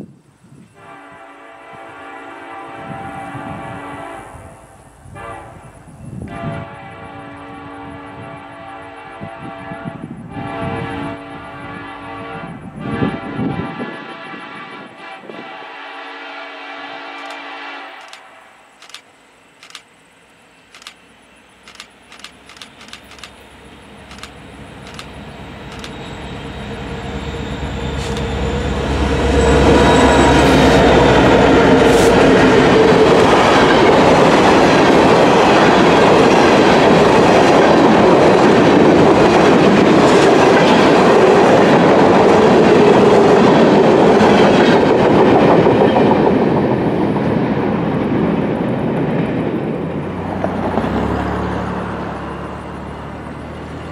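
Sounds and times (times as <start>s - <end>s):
sharp clicks: 17.2s - 17.4s, 18.0s - 18.2s, 18.8s - 19.9s, 20.7s - 21.0s, 21.7s - 23.4s, 24.1s - 26.0s, 28.0s - 28.3s
train wheels clattering on rails: 17.2s - 19.9s, 20.6s - 26.2s, 27.9s - 28.6s
diesel locomotive rumble: 17.2s - 53.9s.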